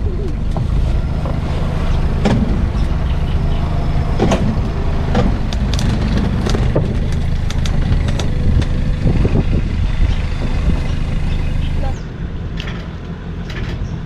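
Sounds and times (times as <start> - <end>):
engine droning: 0.0 - 14.0
knocks and clatters: 0.3 - 3.3, 4.0 - 9.6.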